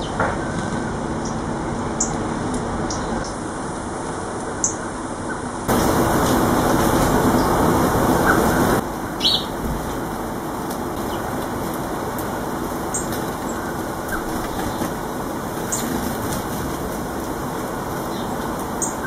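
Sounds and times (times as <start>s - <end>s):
steady background noise: 0.0s - 19.0s
bird wings fluttering: 5.7s - 8.8s, 9.6s - 18.8s.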